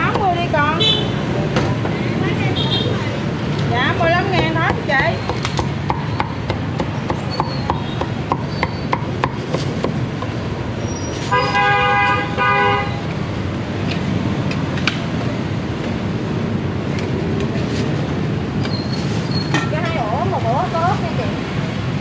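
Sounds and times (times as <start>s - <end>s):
street traffic noise: 0.0s - 22.0s
cleaver chopping on wooden block: 4.4s - 10.3s
vehicle horn honking: 11.3s - 13.0s.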